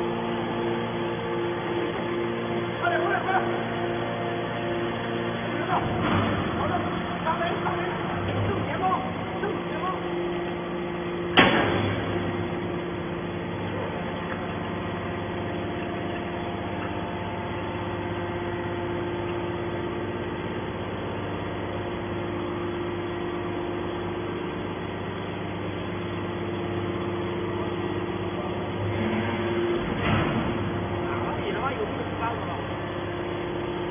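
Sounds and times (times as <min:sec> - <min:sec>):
hydraulic baler humming: 0:00.0 - 0:33.9
sharp metallic clunk: 0:11.3 - 0:12.3.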